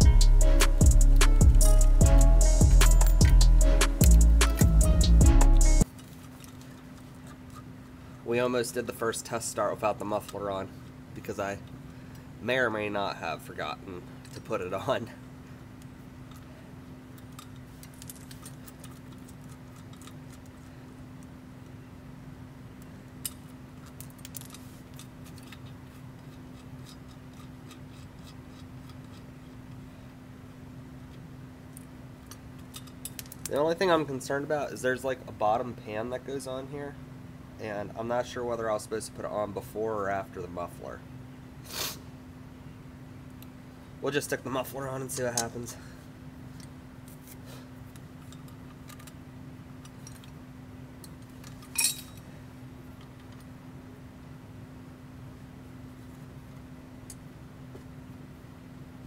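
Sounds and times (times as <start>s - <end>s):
steady low hum: 0.0s - 59.0s
metallic clicks of bolt and nut: 17.2s - 20.6s, 23.2s - 29.8s, 31.8s - 33.6s, 45.2s - 45.5s, 47.9s - 49.2s, 49.8s - 50.4s, 51.0s - 52.3s.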